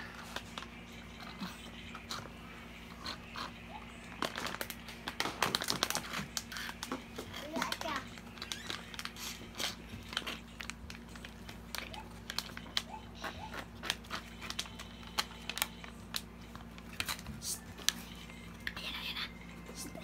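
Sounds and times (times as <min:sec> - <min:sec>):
plastic snack packet crinkling: 0:03.4 - 0:18.8.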